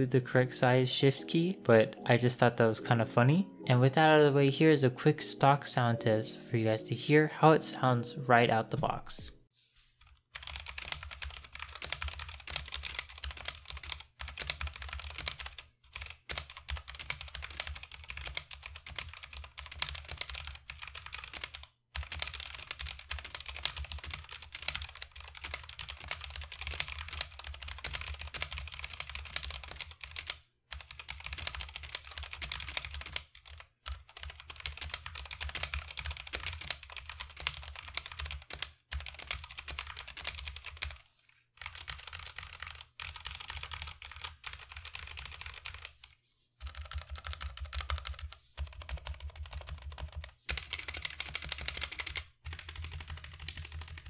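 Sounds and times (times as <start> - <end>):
fast typing on mechanical keyboard: 10.3 - 41.0, 41.6 - 46.0, 46.6 - 54.0.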